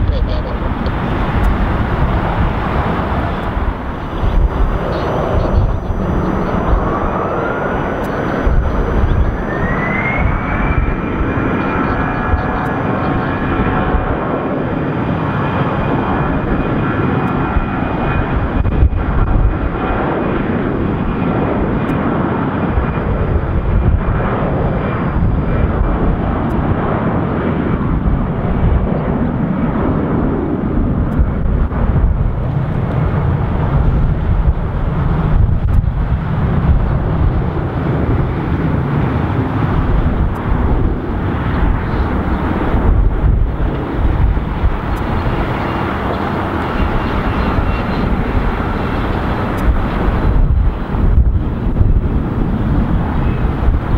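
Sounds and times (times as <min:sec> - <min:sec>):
faint jet whine: 0:00.0 - 0:53.9
jet engines roaring at takeoff: 0:00.0 - 0:53.9.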